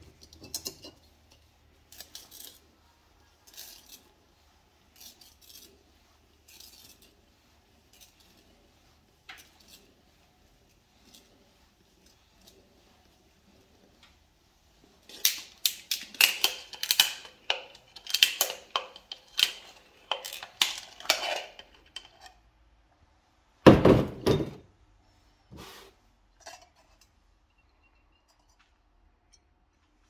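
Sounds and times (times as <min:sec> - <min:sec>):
metal cutter clicking and scraping: 0:00.1 - 0:02.6, 0:03.4 - 0:04.1, 0:04.9 - 0:05.7, 0:06.5 - 0:07.1, 0:15.1 - 0:22.4.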